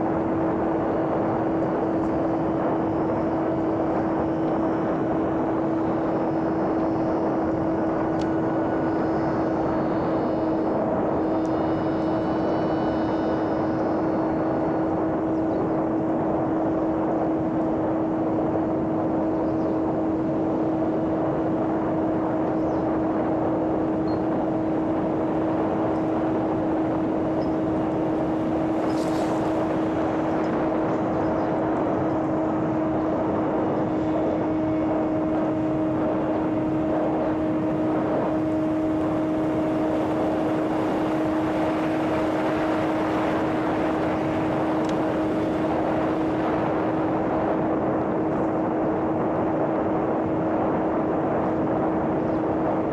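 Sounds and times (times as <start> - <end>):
electric motor whine: 0.0 - 52.9
air rushing: 27.6 - 31.1.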